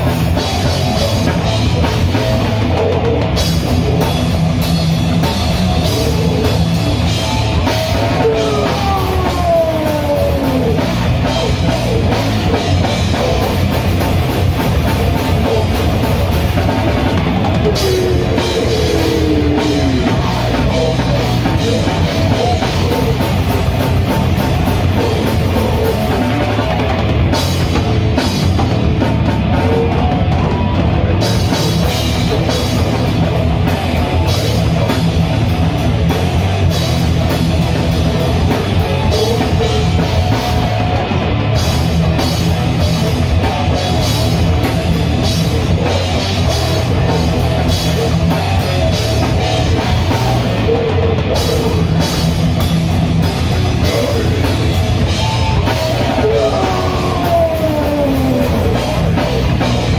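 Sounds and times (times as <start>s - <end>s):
bass guitar: 0.0s - 59.9s
distorted electric guitars: 0.0s - 59.9s
drum kit: 0.0s - 59.9s
person screaming into a microphone: 8.0s - 12.1s, 17.6s - 23.2s, 53.8s - 59.5s.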